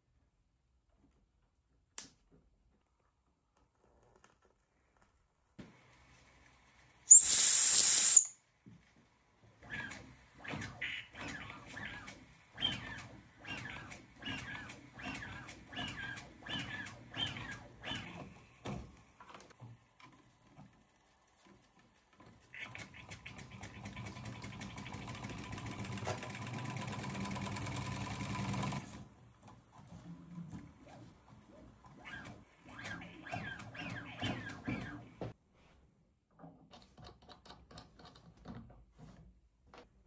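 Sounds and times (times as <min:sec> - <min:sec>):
toy steam engine puffing: 0:07.1 - 0:08.4.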